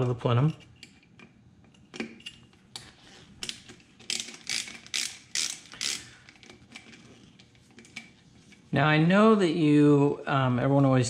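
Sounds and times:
socket ratchet clicking: 3.4s - 6.9s.

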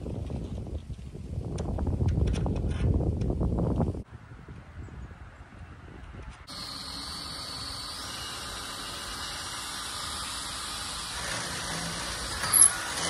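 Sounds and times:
cordless drill whining: 6.5s - 13.0s
high drill squeal: 6.5s - 13.0s.

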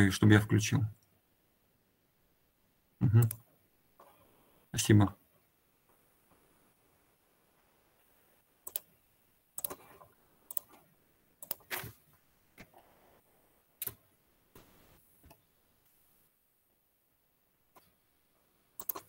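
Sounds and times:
computer mouse clicks: 3.2s - 3.4s, 8.6s - 8.9s, 9.6s - 10.8s, 11.4s - 11.9s, 13.8s - 14.0s, 18.8s - 19.0s.

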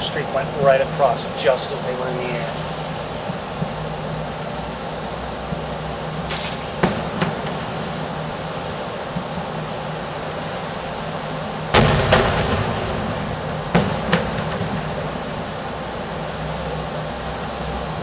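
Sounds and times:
steady background hum: 0.0s - 18.0s
distant fireworks booming: 6.3s - 9.7s, 11.7s - 16.6s.

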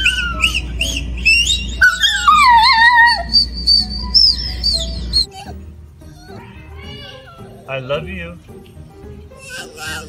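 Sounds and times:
husky howling and whining: 0.0s - 7.7s.

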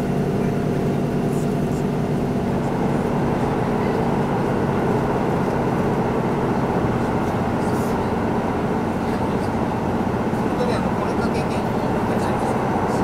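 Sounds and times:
diesel engine droning: 0.0s - 13.0s
train wheels rumbling on track: 0.0s - 13.0s.

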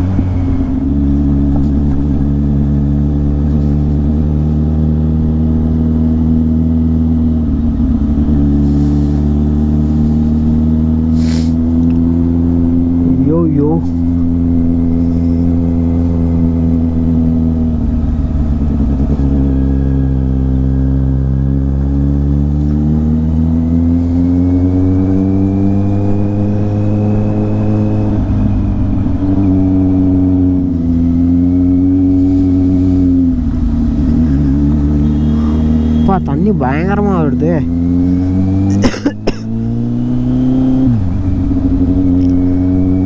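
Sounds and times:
motorcycle engine running: 0.0s - 43.0s.

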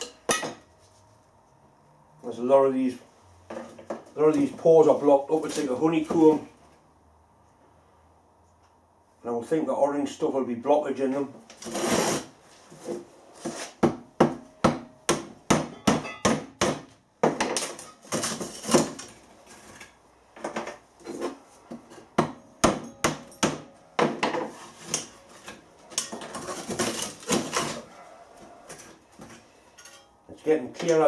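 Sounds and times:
scraping and grating: 11.5s - 13.8s, 24.4s - 30.1s.

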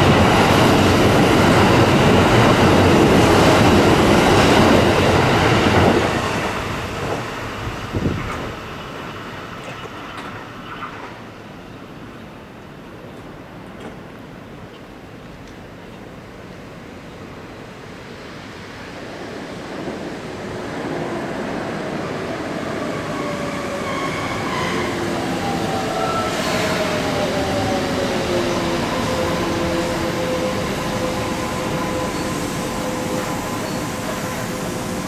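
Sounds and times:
train wheels rumbling on rails: 0.0s - 11.3s.

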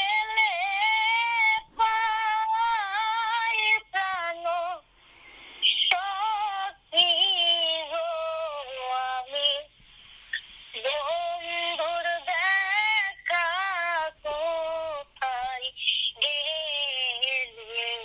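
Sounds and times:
high-pitched singing voice: 0.0s - 4.8s, 5.7s - 9.7s, 10.7s - 18.0s.

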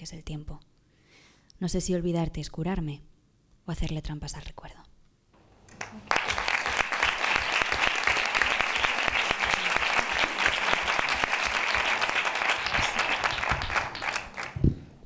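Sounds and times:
audience applauding: 5.7s - 14.6s.

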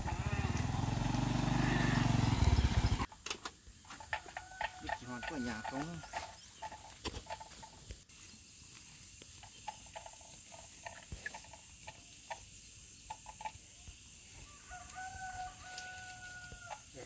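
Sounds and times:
chickens clucking: 3.8s - 7.9s
rooster crowing: 4.1s - 6.4s, 14.4s - 17.0s.

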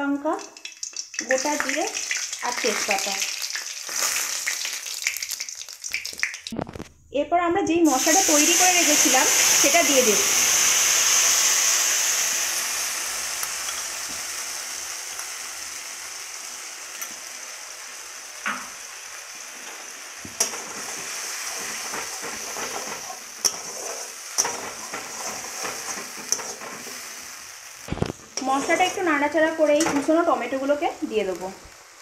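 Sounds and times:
spice paste sizzling in hot oil: 0.0s - 6.6s, 7.8s - 32.0s
spatula scraping metal pan: 20.4s - 27.1s, 28.2s - 30.2s.

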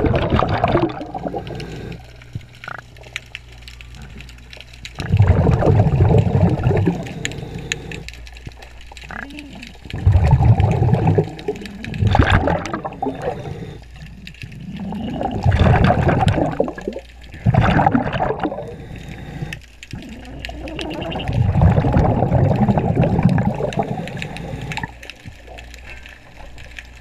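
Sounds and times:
bubbling exhaled air underwater: 0.0s - 27.0s
regulator inhalations: 1.1s - 2.2s, 6.4s - 8.1s, 12.7s - 15.3s, 18.3s - 21.2s, 22.6s - 25.0s.

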